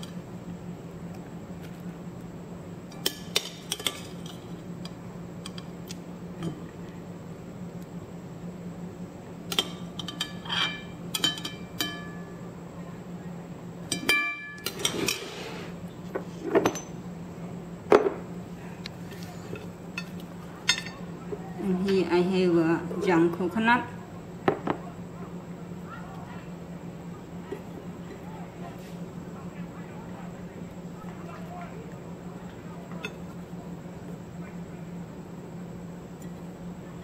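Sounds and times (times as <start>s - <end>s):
steady low hum: 0.0s - 37.0s
metal spoon clinking glass: 10.0s - 12.3s.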